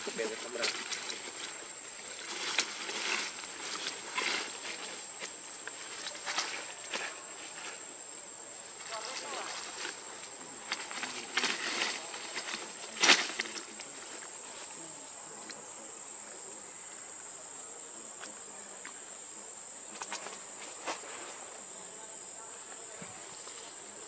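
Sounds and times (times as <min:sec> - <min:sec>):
rustling: 0:00.0 - 0:15.6, 0:19.9 - 0:21.7.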